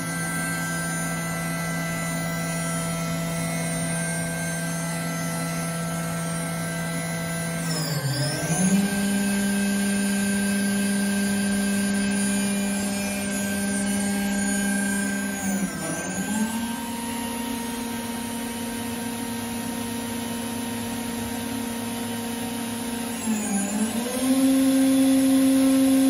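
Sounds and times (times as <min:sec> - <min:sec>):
router spindle whining: 0:00.0 - 0:26.0.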